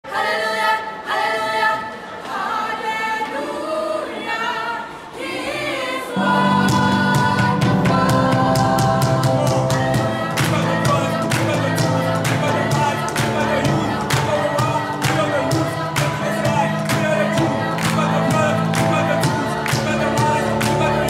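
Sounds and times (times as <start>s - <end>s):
gospel choir singing: 0.0s - 21.0s
steady beat: 6.3s - 21.0s
man singing through microphone: 7.2s - 21.0s.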